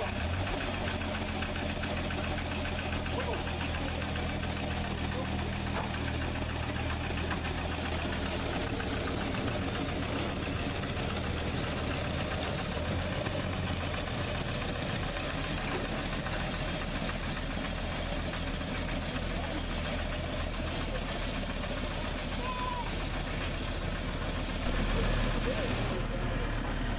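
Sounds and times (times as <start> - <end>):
small locomotive engine running: 0.0 - 26.9.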